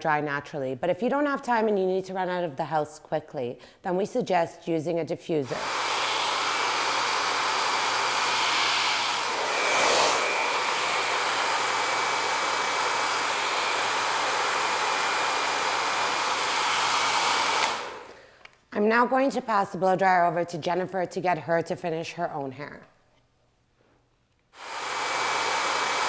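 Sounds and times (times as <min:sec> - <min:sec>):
hair dryer blowing with whine: 0:05.4 - 0:18.2, 0:24.6 - 0:26.0.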